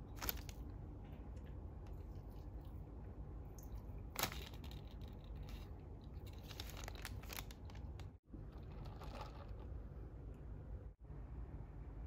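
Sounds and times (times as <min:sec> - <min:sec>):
baking paper crinkling: 0:00.0 - 0:00.7, 0:04.1 - 0:08.2.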